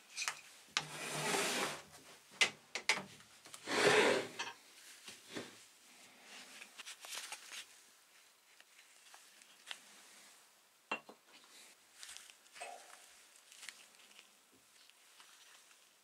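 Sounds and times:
handling sounds with gloves: 0:04.6 - 0:10.4, 0:11.2 - 0:16.0.

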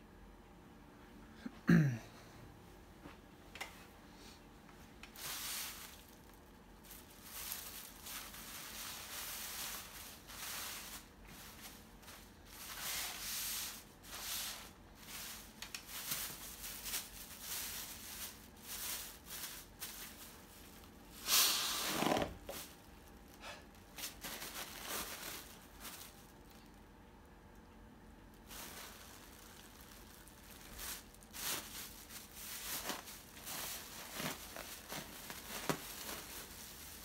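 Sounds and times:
plastic bag crinkling: 0:05.0 - 0:21.0, 0:22.0 - 0:26.9, 0:28.3 - 0:37.0.

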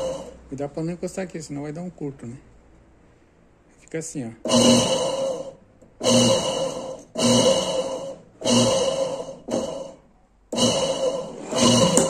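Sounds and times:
washing machine motor humming and whirring: 0:00.0 - 0:00.4, 0:04.5 - 0:12.0.

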